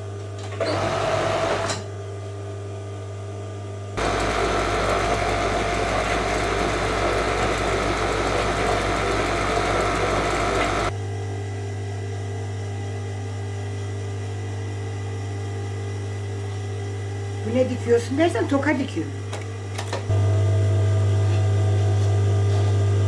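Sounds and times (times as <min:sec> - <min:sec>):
steady motor hum: 0:00.0 - 0:23.0
overlock machine stitching: 0:04.0 - 0:10.9.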